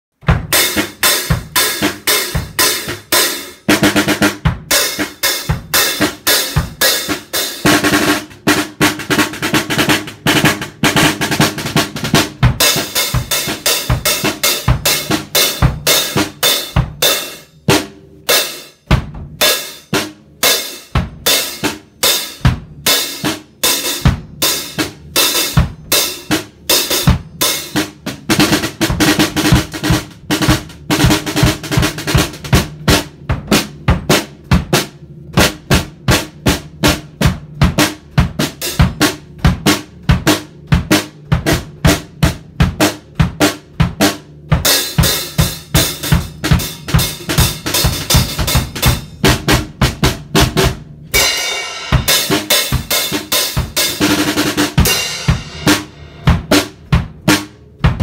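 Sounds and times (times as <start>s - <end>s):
fast drum strokes: 0.2s - 58.0s
muted cymbals: 0.5s - 18.8s, 37.8s - 50.1s, 51.1s - 57.6s.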